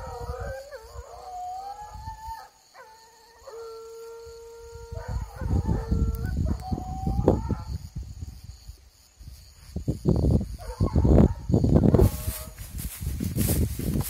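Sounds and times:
hounds baying and howling: 0.0 - 7.9, 10.6 - 12.6.

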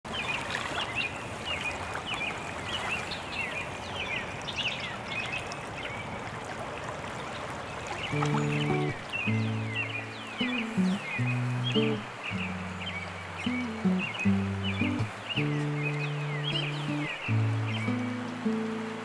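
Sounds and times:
river flowing: 0.1 - 19.0
birds chirping: 7.6 - 19.0
music with held notes: 8.2 - 19.0.

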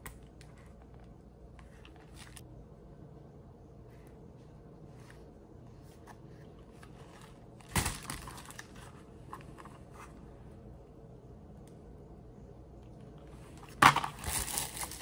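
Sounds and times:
packaging crinkling: 13.8 - 15.0.

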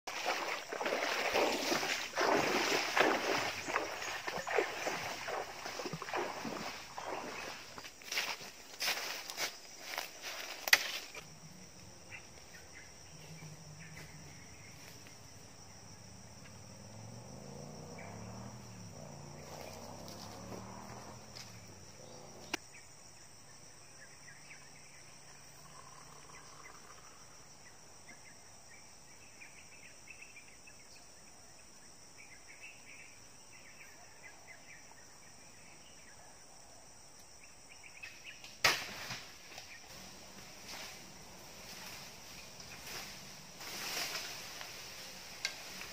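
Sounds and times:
insects buzzing: 0.1 - 45.9.

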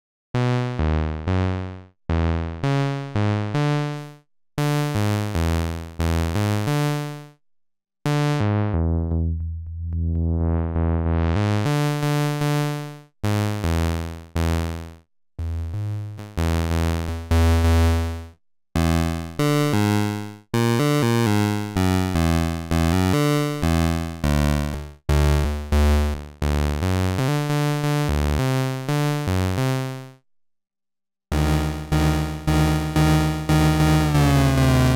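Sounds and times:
synthesizer low decaying notes: 8.2 - 11.8, 31.3 - 34.9
synthesizer filter sweep: 8.4 - 11.7, 31.3 - 34.9.

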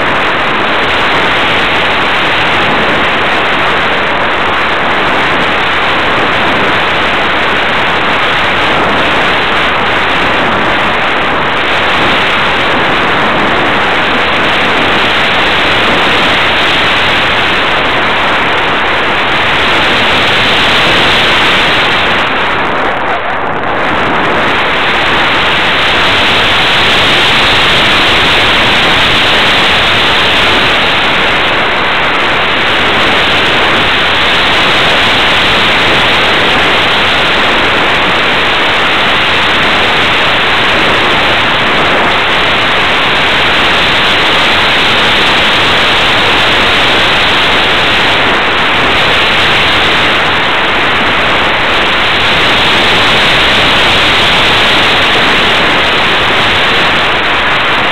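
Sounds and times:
wind rushing over microphone: 0.0 - 57.9.

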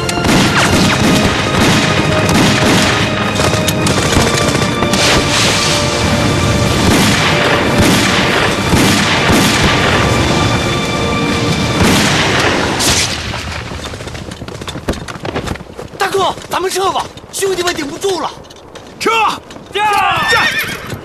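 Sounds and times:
gunfire: 0.2 - 5.9, 6.8 - 10.2, 11.8 - 13.6
explosions booming: 0.2 - 10.7, 11.3 - 14.1.

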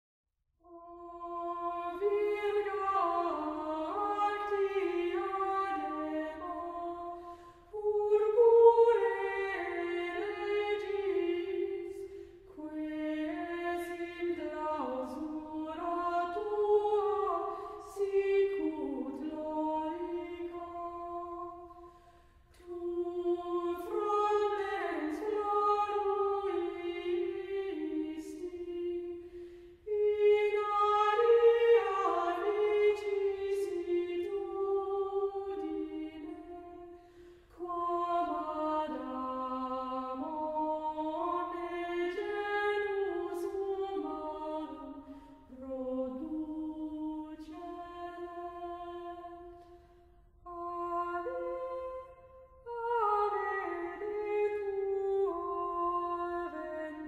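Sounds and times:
choir singing unaccompanied: 7.8 - 21.8, 22.6 - 29.3, 29.9 - 36.8, 45.6 - 49.5.

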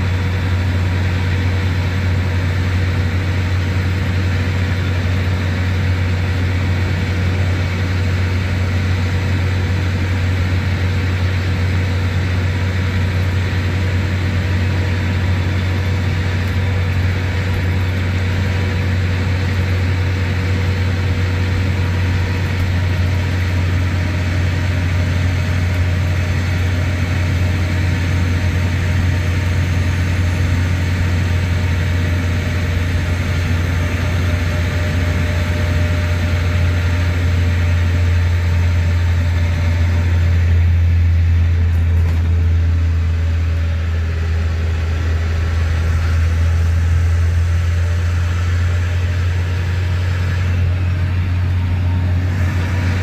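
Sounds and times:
diesel bus engine drone: 0.0 - 53.0.

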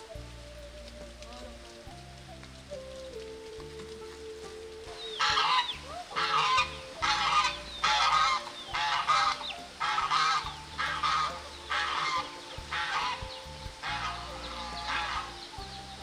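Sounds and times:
geese honking: 0.0 - 16.0.

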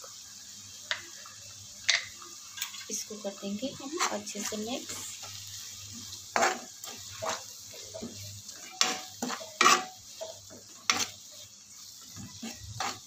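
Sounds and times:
faint sizzle of frying: 0.0 - 13.0
steel spoon scraping metal pan: 3.9 - 5.0, 6.4 - 11.2, 12.2 - 13.0.

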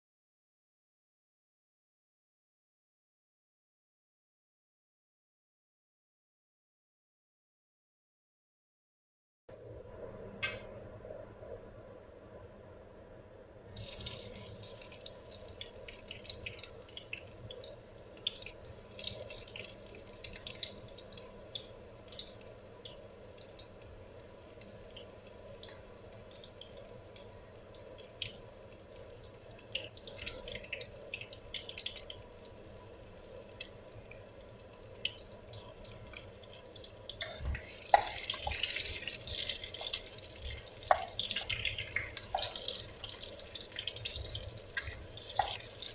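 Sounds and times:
crackles and pops: 13.8 - 45.9
onion sizzling in hot oil: 34.9 - 45.9.

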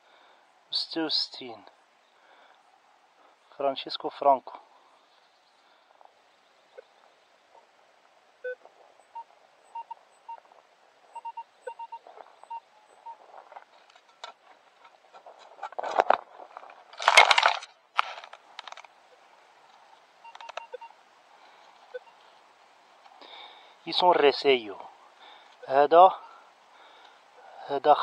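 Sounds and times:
metal detector beeps: 8.4 - 10.5, 11.1 - 13.2, 20.2 - 21.0, 21.9 - 22.2
scraping and rustling near microphone: 11.8 - 19.0.

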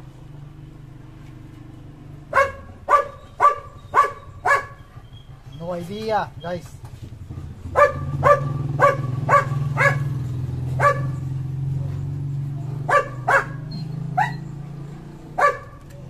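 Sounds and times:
dog barking: 2.3 - 5.2, 7.7 - 12.0, 12.7 - 14.5, 15.3 - 16.0.

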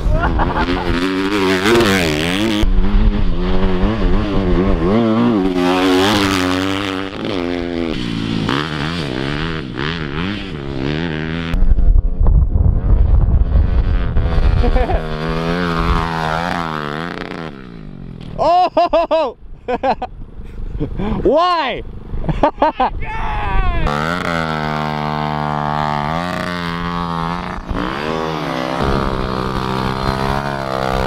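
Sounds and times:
dirt bike engines revving: 0.0 - 11.6, 13.4 - 31.0
loud deep rumble: 11.5 - 15.0, 26.7 - 31.0.

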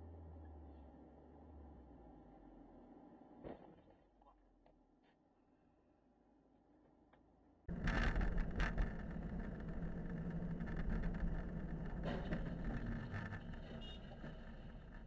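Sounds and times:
engine and road rumble: 7.7 - 15.0.

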